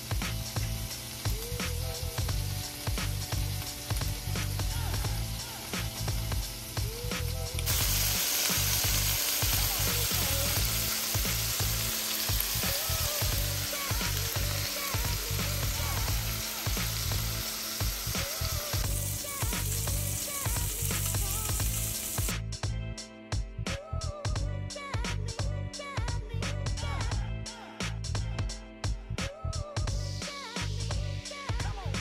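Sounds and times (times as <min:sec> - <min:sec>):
patties sizzling in skillet: 0:00.0 - 0:22.4.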